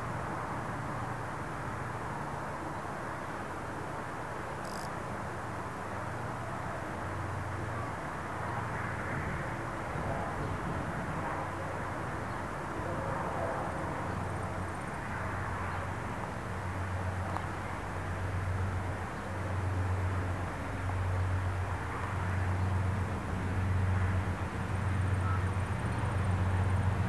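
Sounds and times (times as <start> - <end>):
distant locomotive engine drone: 8.6 - 27.0.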